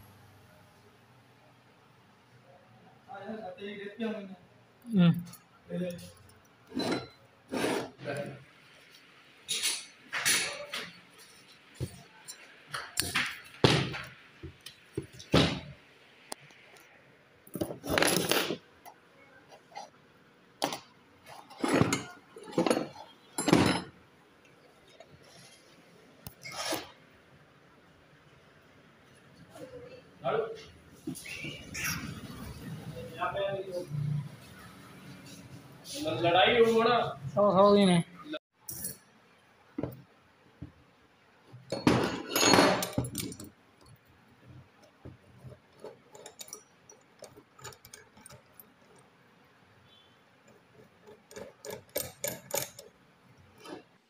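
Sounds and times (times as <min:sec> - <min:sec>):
clattering metal rattle: 0:41.7 - 0:43.6, 0:45.3 - 0:49.0, 0:51.0 - 0:52.9
metal parts clinking in a tray: 0:41.7 - 0:43.6, 0:45.5 - 0:48.7, 0:51.0 - 0:52.9.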